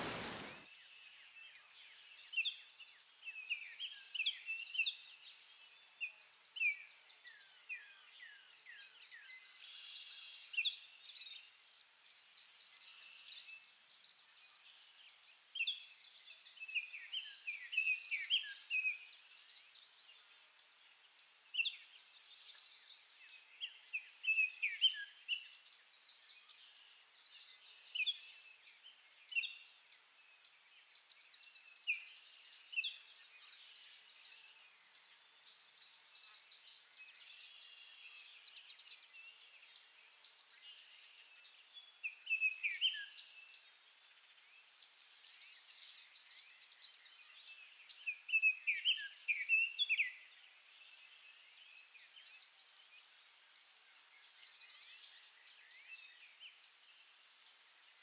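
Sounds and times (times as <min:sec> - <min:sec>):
high insect drone: 0:00.0 - 0:00.6
songbirds chirping: 0:00.0 - 0:58.0.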